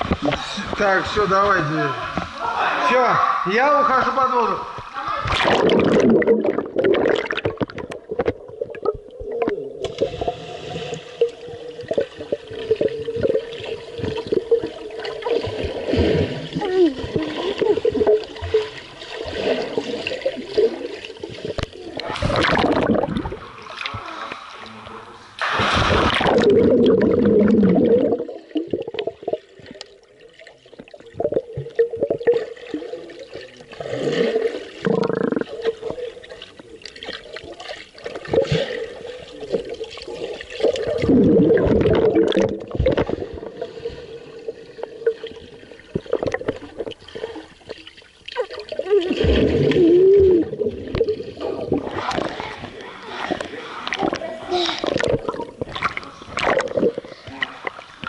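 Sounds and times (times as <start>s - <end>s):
underwater gurgling and bubbling: 4.7s - 24.5s, 25.6s - 58.0s.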